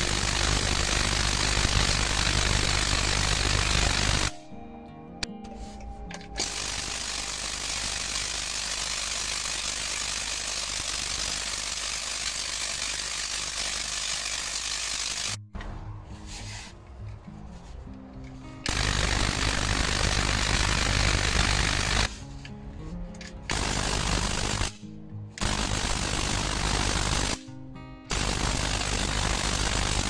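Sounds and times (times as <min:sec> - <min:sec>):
tesla coil buzzing: 0:00.0 - 0:04.5.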